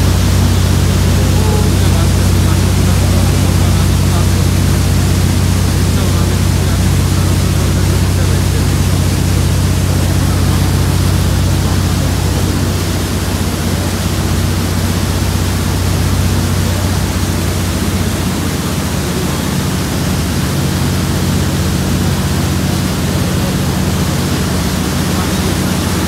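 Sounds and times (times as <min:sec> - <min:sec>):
boat engine drone: 0:00.0 - 0:26.0
churning wake water: 0:00.0 - 0:26.0.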